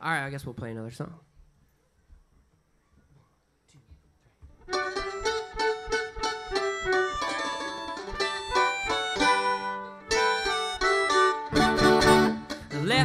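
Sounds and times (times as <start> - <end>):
plucked string melody: 4.6 - 13.0.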